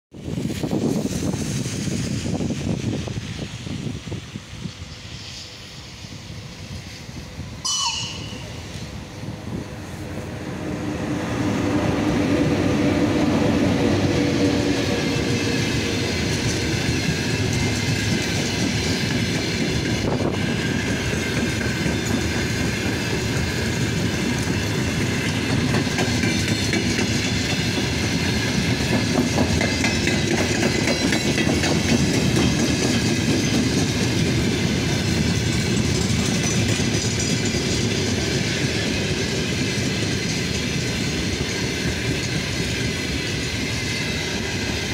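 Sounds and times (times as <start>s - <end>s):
locomotive hum and rumble: 0.2s - 44.9s
wheels clacking over rail joints: 13.4s - 44.9s.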